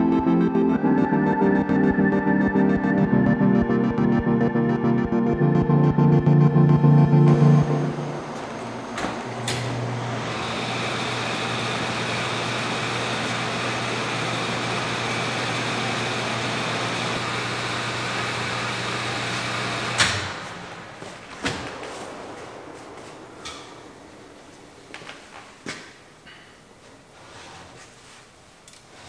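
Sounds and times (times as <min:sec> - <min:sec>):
oven fan humming: 0:07.3 - 0:26.3.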